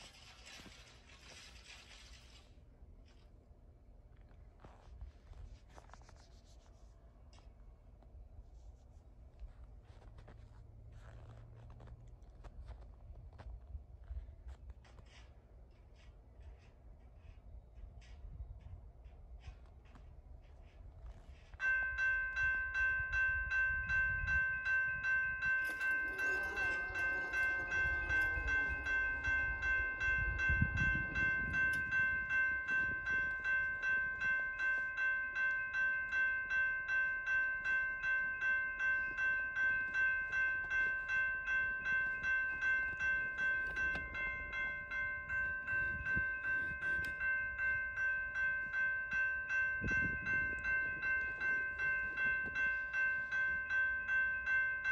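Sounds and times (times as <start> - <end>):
crossing warning bell ringing: 21.4 - 54.9.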